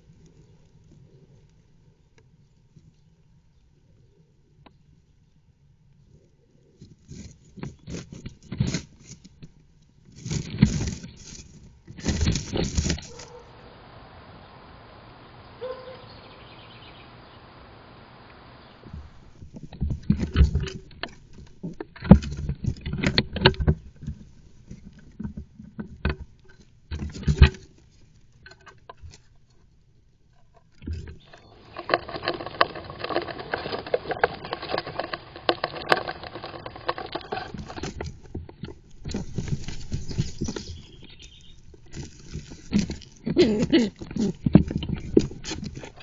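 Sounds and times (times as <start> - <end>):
claws scratching on wood: 6.8 - 9.4, 10.1 - 13.5, 30.8 - 46.0
nesting material rustling: 10.1 - 14.0, 30.9 - 46.0.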